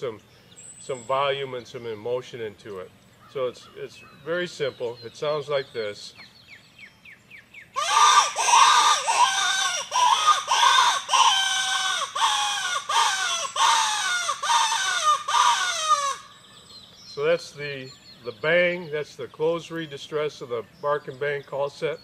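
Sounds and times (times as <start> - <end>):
rabbit distress call squealing: 7.8 - 16.3.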